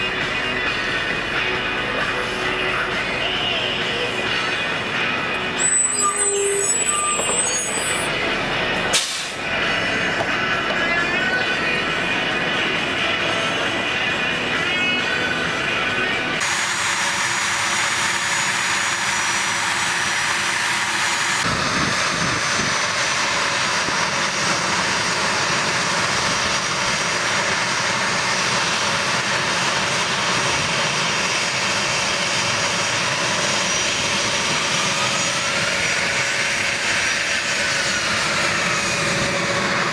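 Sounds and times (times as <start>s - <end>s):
whistling tone of taxiing jet: 5.6s - 8.2s, 27.6s - 39.9s
jet engine whine and rush: 16.2s - 39.9s.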